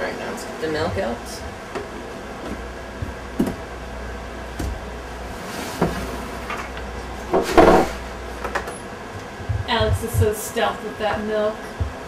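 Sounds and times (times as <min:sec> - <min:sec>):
container knocking on table: 0:07.3 - 0:08.0.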